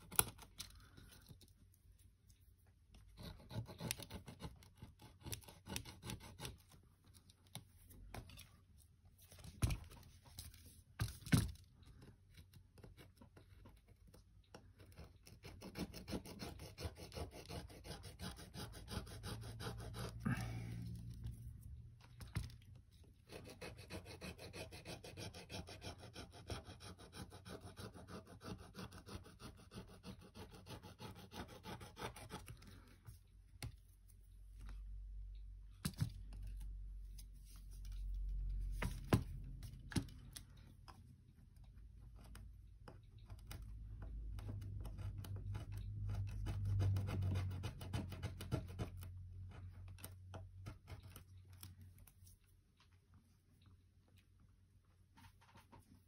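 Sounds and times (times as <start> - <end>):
tool scraping tablet: 14.6 - 21.5, 23.2 - 33.0.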